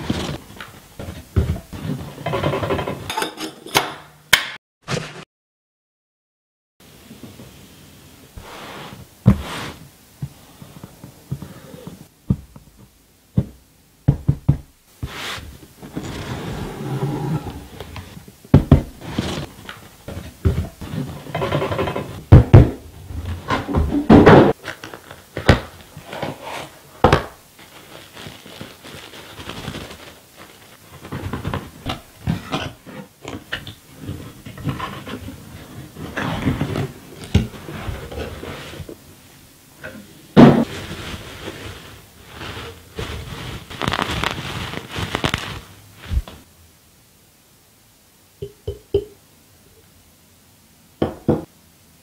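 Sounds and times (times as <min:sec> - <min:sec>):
cardboard scraping and rustling: 0:00.0 - 0:02.2, 0:15.0 - 0:18.2, 0:18.9 - 0:21.3, 0:27.6 - 0:39.0, 0:40.4 - 0:46.5.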